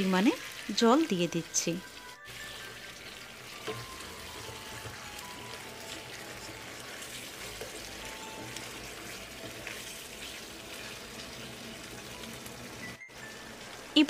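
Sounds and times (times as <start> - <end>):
chicken sizzling in frying pan: 0.0 - 14.0.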